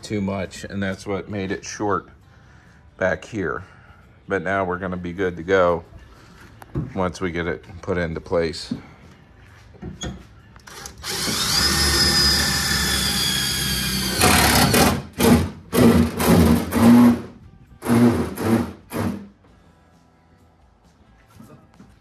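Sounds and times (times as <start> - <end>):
cordless drill whining: 10.6 - 19.2.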